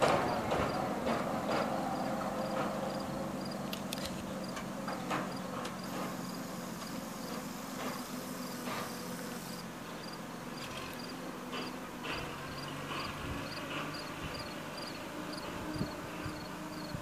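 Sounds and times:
distant truck engine running: 0:00.0 - 0:07.0
insects chirping: 0:01.8 - 0:11.7, 0:12.5 - 0:17.0.

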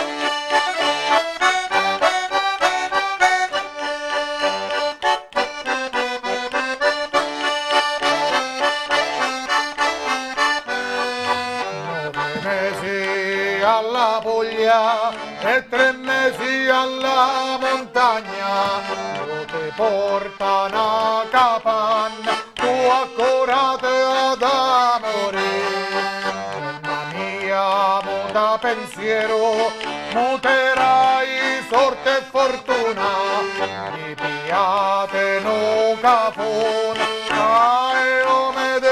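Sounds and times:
button accordion playing folk tune: 0:00.0 - 0:38.9
man singing: 0:11.0 - 0:38.9.

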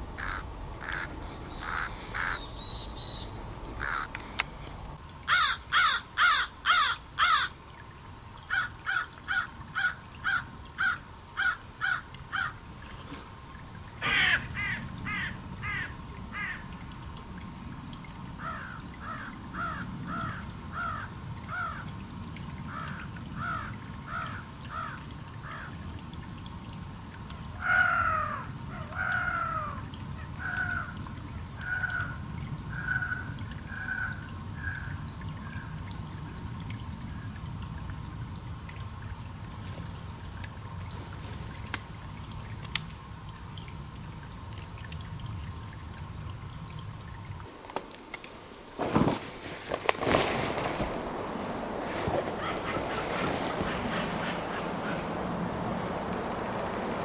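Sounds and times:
harsh caw-like animal calls: 0:00.2 - 0:02.4, 0:03.8 - 0:04.4, 0:05.3 - 0:07.6, 0:14.0 - 0:16.6, 0:18.4 - 0:21.9, 0:22.7 - 0:25.7, 0:27.6 - 0:29.8, 0:30.4 - 0:31.0, 0:31.6 - 0:34.9, 0:52.3 - 0:55.1.

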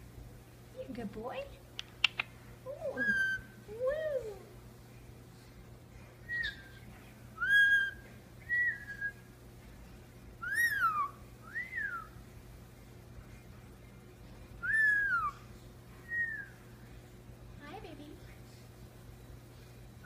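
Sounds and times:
parakeet whistling: 0:02.9 - 0:03.6, 0:06.2 - 0:06.8, 0:07.4 - 0:09.3, 0:10.4 - 0:12.2, 0:14.6 - 0:15.4, 0:16.0 - 0:16.6.

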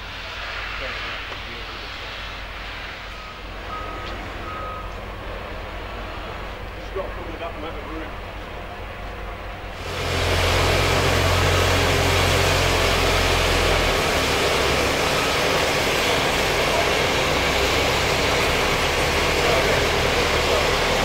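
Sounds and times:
steam venting hiss: 0:00.0 - 0:07.4, 0:09.7 - 0:21.0
low engine hum: 0:02.4 - 0:21.0.

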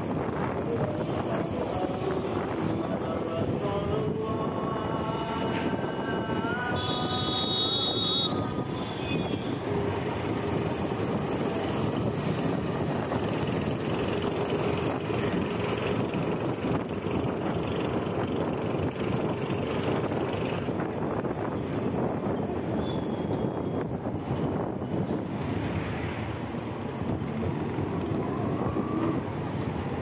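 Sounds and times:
auto-rickshaw motor noise: 0:00.0 - 0:30.0
road and wind noise: 0:00.0 - 0:30.0
vehicle horn: 0:06.7 - 0:09.6.

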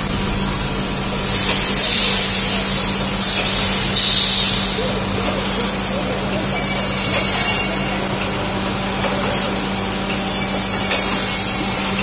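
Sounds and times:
high hiss: 0:00.0 - 0:05.7
machine humming and rattling: 0:00.0 - 0:12.0.

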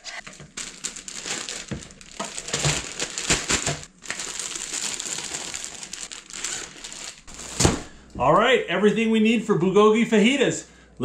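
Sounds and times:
plastic bag crinkling: 0:00.2 - 0:08.1.

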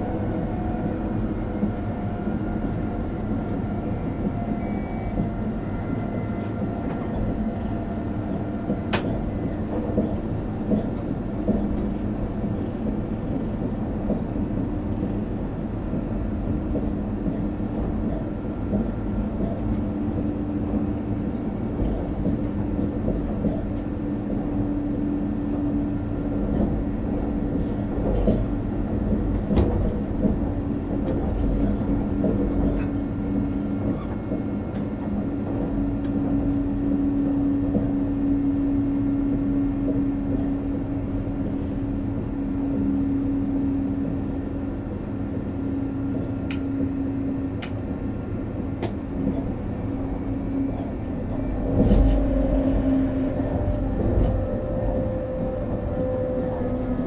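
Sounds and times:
humming tone: 0:00.0 - 0:10.9, 0:30.5 - 0:57.0
train wheels rumbling on rail: 0:00.0 - 0:57.0.

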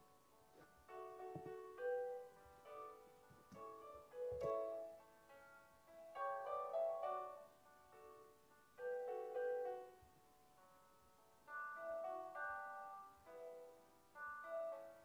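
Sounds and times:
slow keyboard chords: 0:00.0 - 0:15.0.

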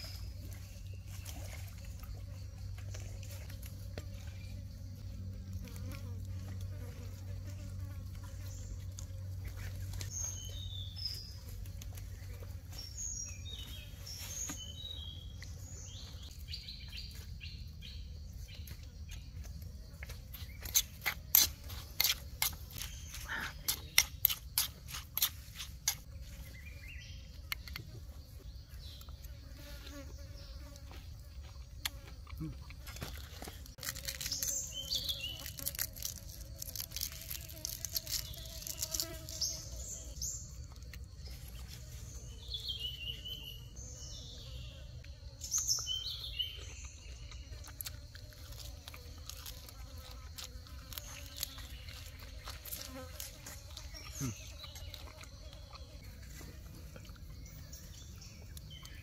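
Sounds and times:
insect buzz: 0:00.0 - 0:59.0
birds chirping: 0:50.9 - 0:59.0.

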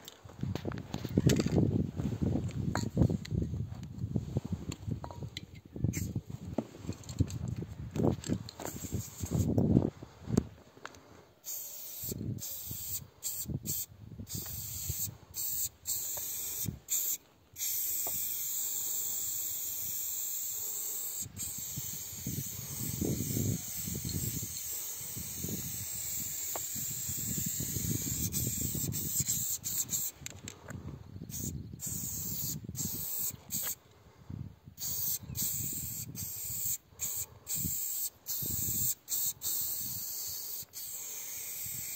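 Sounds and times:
spray paint can hissing: 0:05.9 - 0:06.2, 0:08.6 - 0:09.6, 0:11.4 - 0:30.2, 0:31.3 - 0:33.8, 0:34.8 - 0:41.9.

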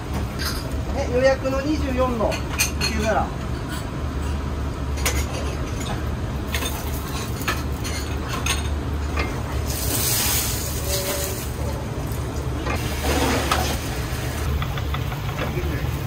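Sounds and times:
egg sizzling in a pan: 0:09.6 - 0:11.6.

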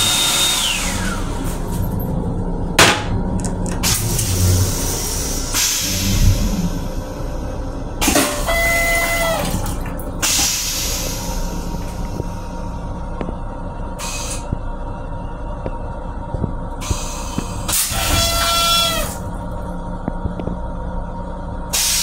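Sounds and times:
railcar rumble: 0:00.8 - 0:22.0
flush burst with whining tone: 0:03.8 - 0:09.5
toilet flush water hissing: 0:03.9 - 0:12.6, 0:21.7 - 0:22.0.

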